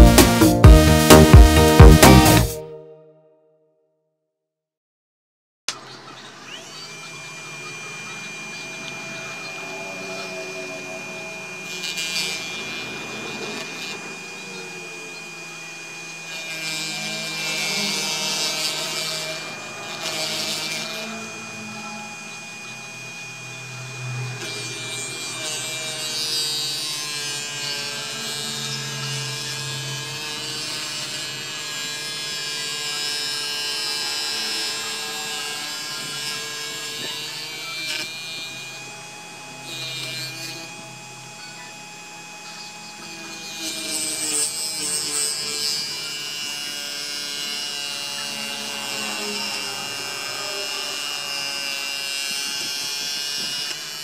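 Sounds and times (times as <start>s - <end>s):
lathe motor whine: 5.7s - 54.0s
cutting tool scraping workpiece: 6.5s - 41.0s, 42.4s - 54.0s.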